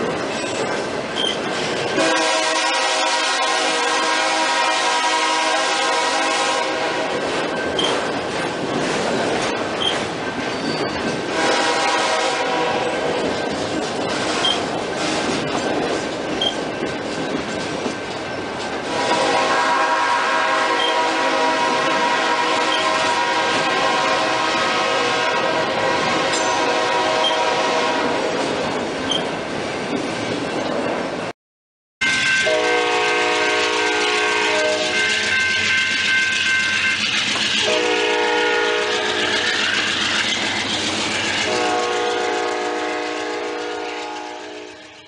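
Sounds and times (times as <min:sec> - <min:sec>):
freight train rolling over rails: 0:00.0 - 0:31.3, 0:32.0 - 0:45.0
locomotive horn blasts: 0:02.0 - 0:07.3, 0:11.3 - 0:13.2, 0:18.9 - 0:28.3, 0:32.0 - 0:39.5, 0:41.4 - 0:45.0.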